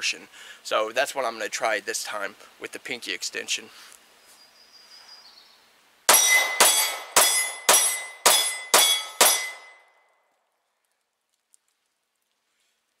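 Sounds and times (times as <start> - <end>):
rapid pistol shots: 6.1 - 9.6.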